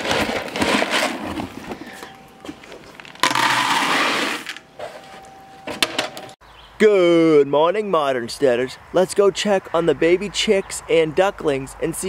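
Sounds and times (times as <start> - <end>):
pellets pouring into plastic bucket: 3.2 - 4.6.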